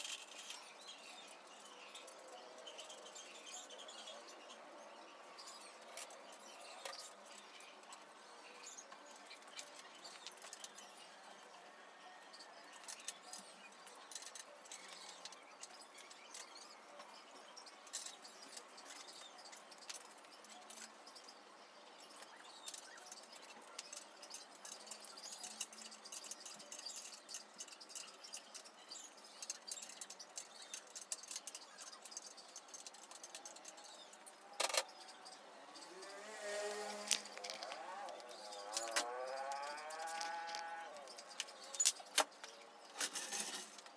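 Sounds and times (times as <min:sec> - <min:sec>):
small metal parts clicking: 0:00.0 - 0:03.9, 0:12.3 - 0:16.7, 0:17.7 - 0:21.4, 0:22.0 - 0:43.9.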